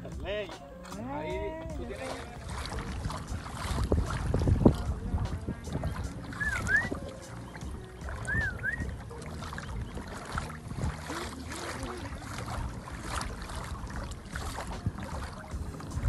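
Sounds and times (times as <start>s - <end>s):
water lapping against kayak hull: 0.0s - 16.0s
wind rumble on microphone: 0.0s - 16.0s
warbling whistle: 6.3s - 7.0s, 8.2s - 9.0s.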